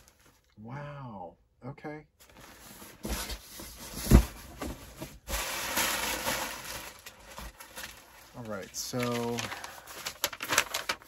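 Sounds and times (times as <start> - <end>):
packing paper rustling: 0.0 - 0.5, 2.2 - 11.0.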